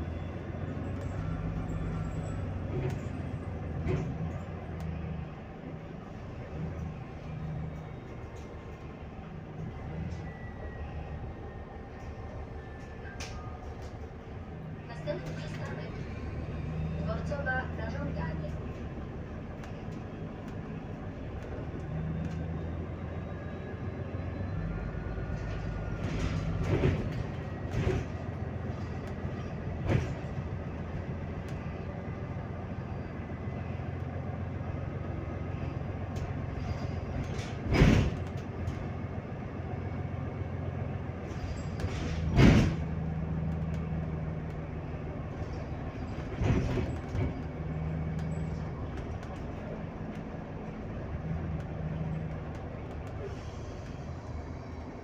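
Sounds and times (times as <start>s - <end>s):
bus drive hum: 0.0s - 55.0s
bus body knocks and rattles: 26.0s - 30.8s, 36.2s - 38.9s, 41.5s - 43.2s, 45.9s - 50.3s.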